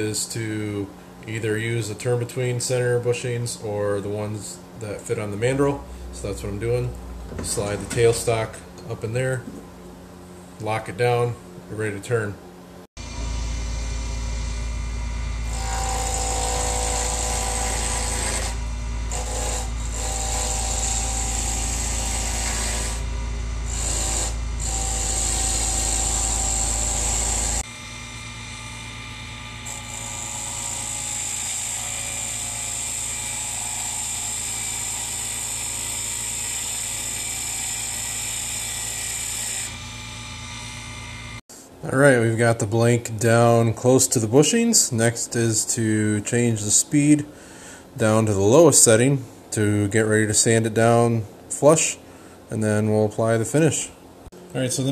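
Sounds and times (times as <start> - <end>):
lathe motor hum: 13.0 - 41.4
tool cutting wood hissing: 13.0 - 41.4.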